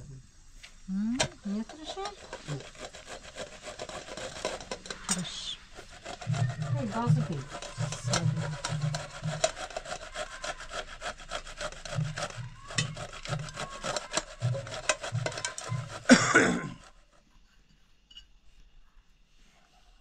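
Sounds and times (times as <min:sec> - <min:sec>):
hand saw cutting wood: 0:01.2 - 0:17.2.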